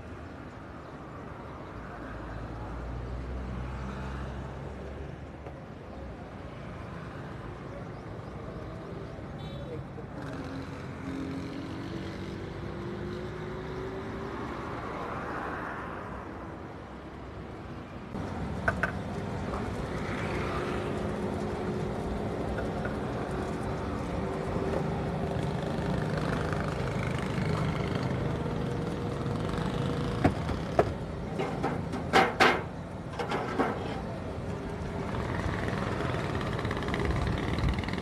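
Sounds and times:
street traffic engines: 0.0 - 38.0.

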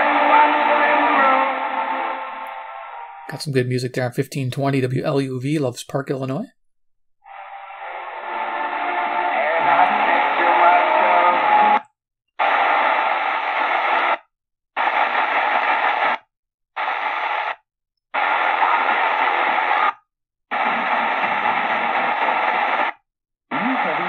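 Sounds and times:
radio static and hiss: 7.3 - 11.8, 12.4 - 14.2, 14.8 - 16.2, 18.2 - 24.0
radio voices and music: 9.3 - 11.8, 23.6 - 24.0.

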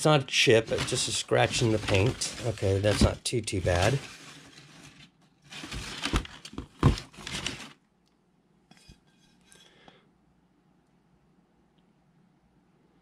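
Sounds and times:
rustling while handling: 0.4 - 7.8.

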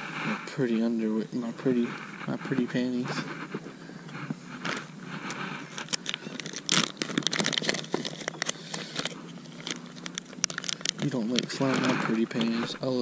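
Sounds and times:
plastic package crinkling: 4.5 - 13.0.

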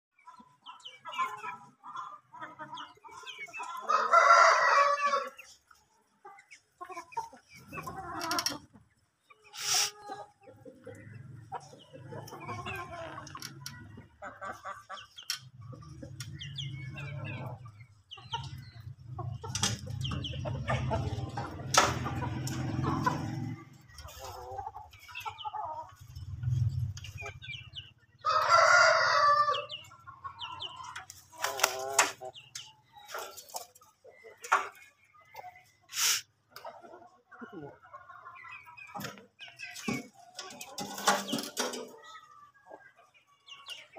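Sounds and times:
chickens clucking: 0.1 - 43.9
rooster crowing: 28.2 - 29.7.

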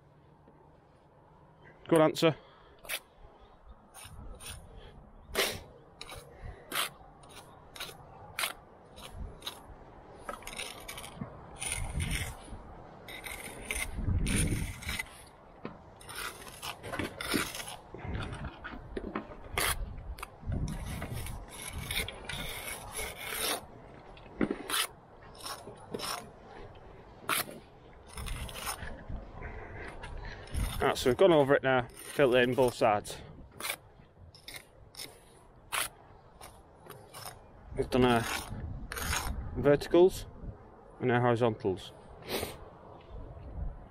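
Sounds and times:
brick jointer scraping mortar: 10.2 - 15.3, 16.0 - 23.7, 24.4 - 26.4, 27.2 - 33.8, 34.4 - 39.4.

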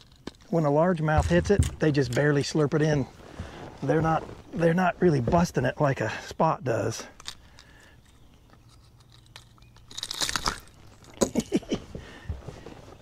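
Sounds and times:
sharp clicks and knocks: 0.0 - 2.6
crackling scuffle: 0.0 - 6.3, 7.0 - 13.0.

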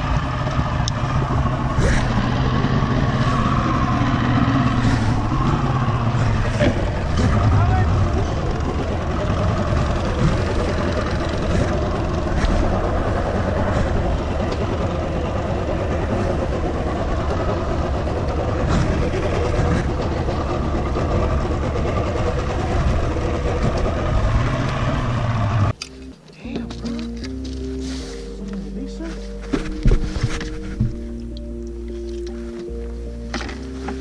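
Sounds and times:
outboard motor running: 0.0 - 25.8.

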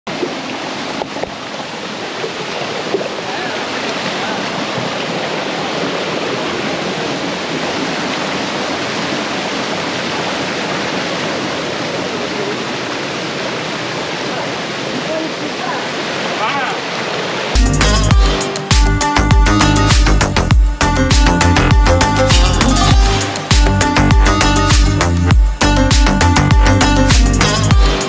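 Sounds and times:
stream rushing over rocks: 0.1 - 18.9.

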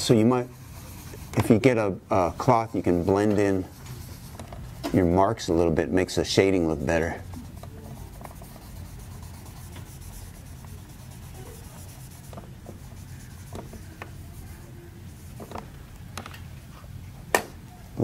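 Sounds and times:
low steady hum: 0.0 - 18.0
pencil scratching on paper: 0.4 - 5.0, 6.8 - 15.6.

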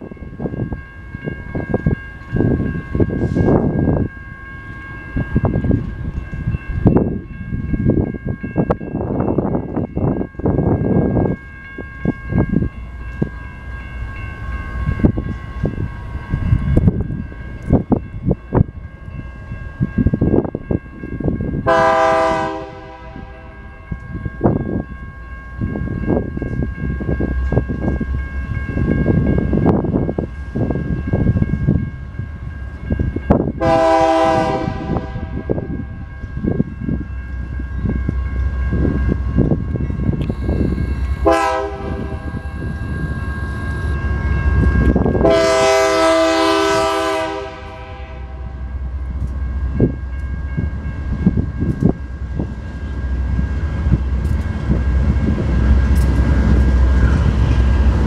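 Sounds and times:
locomotive air horn blasts: 21.7 - 23.7, 33.6 - 35.5, 40.2 - 44.0, 45.2 - 48.6.

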